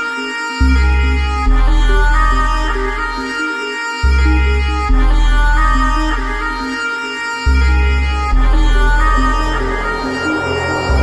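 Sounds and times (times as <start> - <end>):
background music with held notes: 0.0 - 11.0
deep bass: 8.3 - 11.0.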